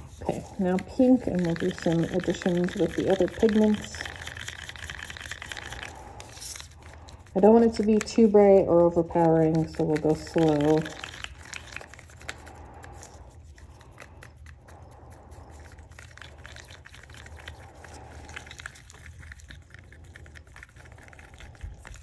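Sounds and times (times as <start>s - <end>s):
stick scraping and tapping cup: 7.6s - 12.4s.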